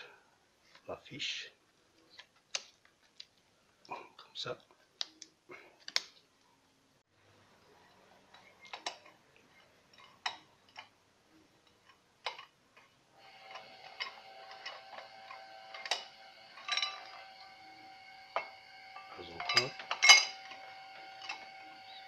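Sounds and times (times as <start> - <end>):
faint multi-tone whine: 6.4 - 22.0.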